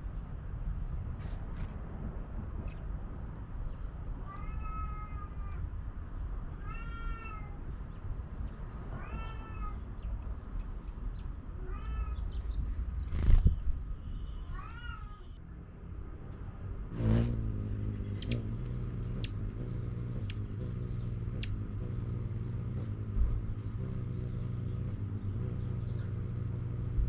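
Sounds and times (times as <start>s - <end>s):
low background rumble: 11.2s - 27.0s.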